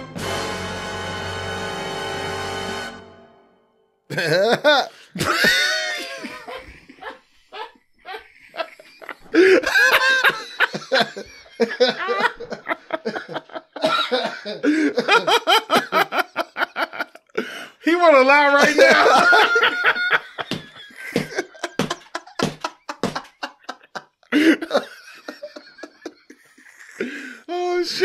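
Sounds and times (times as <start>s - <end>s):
people laughing hard: 4.1s - 28.0s
person coughing: 13.8s - 14.7s.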